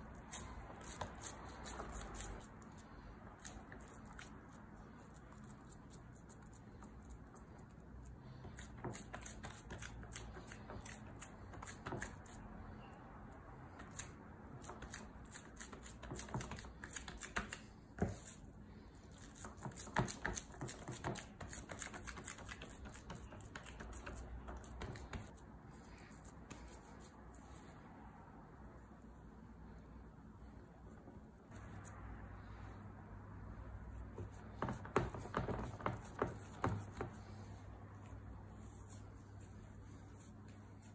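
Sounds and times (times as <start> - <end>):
hands patting dough in tray: 0.0 - 7.7, 8.4 - 12.4, 13.8 - 18.4, 19.1 - 25.4, 34.0 - 40.9.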